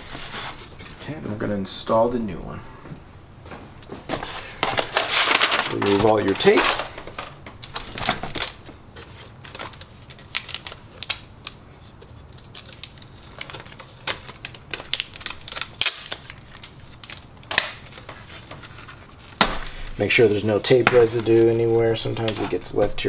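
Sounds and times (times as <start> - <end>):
tape peeling off plastic: 7.6 - 19.7.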